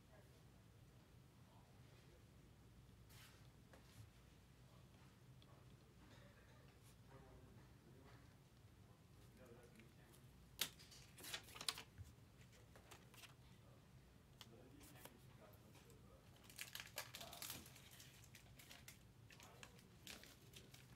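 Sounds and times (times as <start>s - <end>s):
packaging crinkling and rustling: 16.3s - 20.9s.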